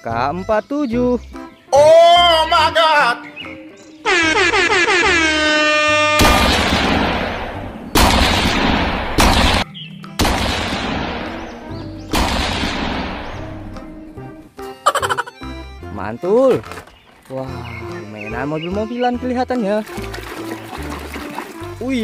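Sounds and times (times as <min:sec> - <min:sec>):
background music: 0:00.0 - 0:22.0
loud gunshot blasts: 0:06.2 - 0:13.7.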